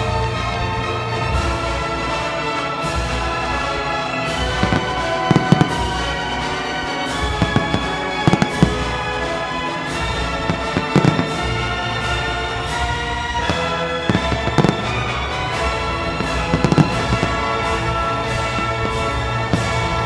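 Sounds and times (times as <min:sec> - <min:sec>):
music: 0:00.0 - 0:20.0
fireworks bursting: 0:03.4 - 0:20.0.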